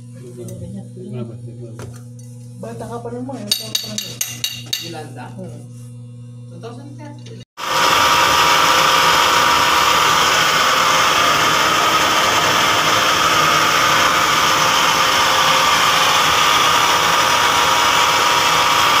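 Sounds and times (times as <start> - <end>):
screw compressor whirring: 7.6 - 19.0.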